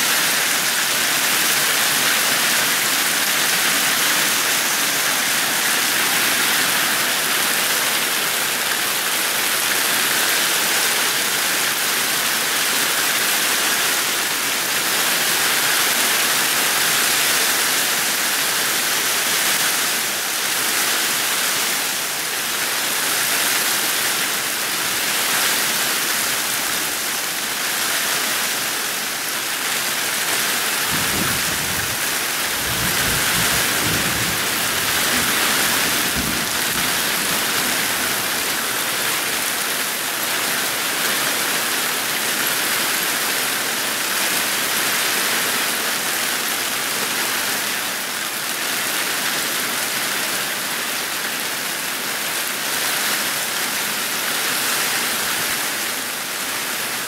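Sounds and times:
heavy rain hissing: 0:00.0 - 0:57.0
low thunder rumble: 0:32.6 - 0:37.3.

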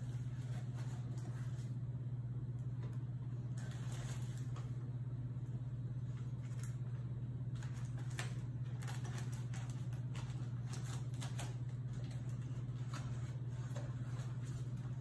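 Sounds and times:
steady low hum: 0:00.0 - 0:15.0
paper bag crinkling: 0:03.3 - 0:04.8, 0:06.0 - 0:15.0.

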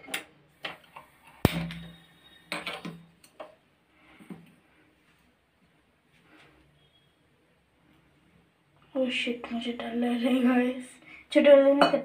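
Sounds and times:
gas burner catching with pop: 0:01.4 - 0:01.9.

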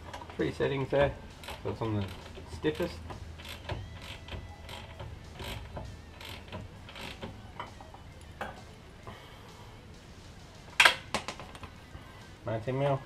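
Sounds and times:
socket ratchet clicking: 0:01.4 - 0:07.7.

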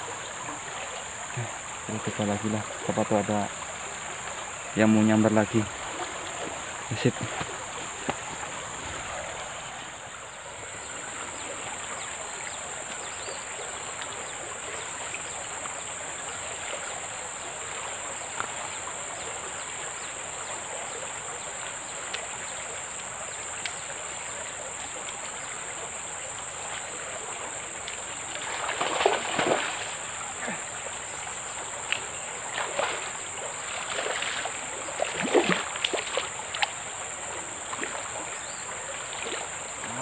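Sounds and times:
river water flowing: 0:00.0 - 0:40.0
faint ticks: 0:07.1 - 0:09.1, 0:18.2 - 0:18.7, 0:21.6 - 0:22.3, 0:23.5 - 0:23.9, 0:27.8 - 0:28.1, 0:31.7 - 0:32.2, 0:35.6 - 0:36.9.

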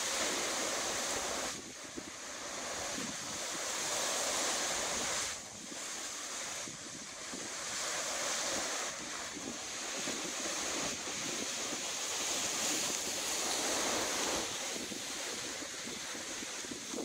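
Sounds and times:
strong wind rushing through palm trees: 0:00.0 - 0:17.0
wind buffeting microphone: 0:04.6 - 0:17.0.

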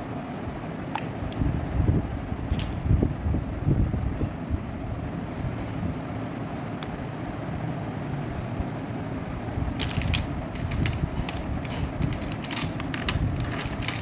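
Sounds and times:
wind rumble on microphone: 0:01.2 - 0:06.2, 0:08.4 - 0:14.0
fingers rustling in grass: 0:02.5 - 0:08.1, 0:09.3 - 0:14.0.

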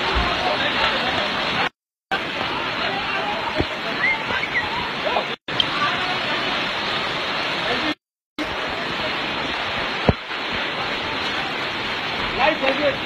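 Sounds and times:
water rushing: 0:00.0 - 0:13.0.

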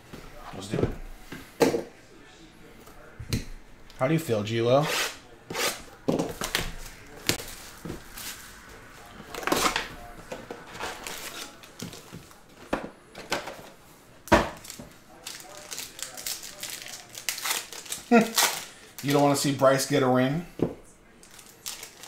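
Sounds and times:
foil packs rustling: 0:06.4 - 0:12.6, 0:14.6 - 0:19.3, 0:21.2 - 0:22.0.

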